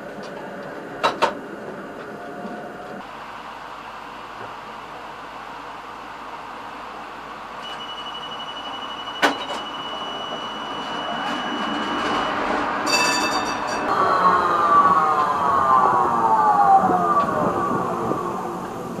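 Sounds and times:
tram rolling past: 0:00.0 - 0:19.0
thin high steady tone: 0:07.6 - 0:11.6
ringing high tones: 0:07.6 - 0:14.3.

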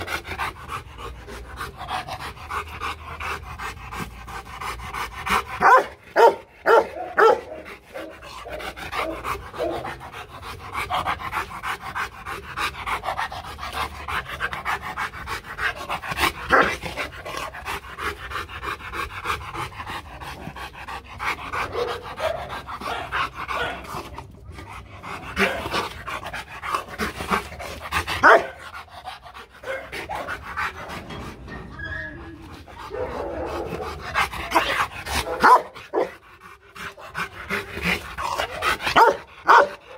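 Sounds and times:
dog panting hard: 0:00.0 - 0:39.9
dog barking loudly: 0:05.6 - 0:09.8, 0:21.7 - 0:23.8, 0:28.2 - 0:28.6, 0:32.9 - 0:36.1, 0:38.5 - 0:39.9.

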